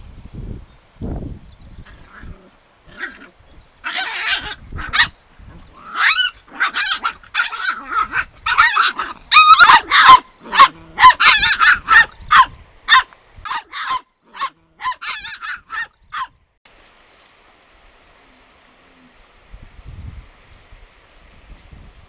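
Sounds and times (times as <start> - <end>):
puppies yipping and barking: 2.9 - 16.3.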